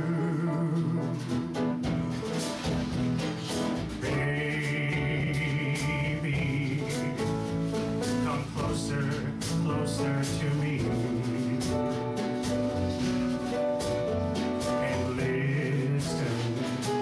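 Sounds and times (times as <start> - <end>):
slow ballad held chords: 0.0 - 2.6.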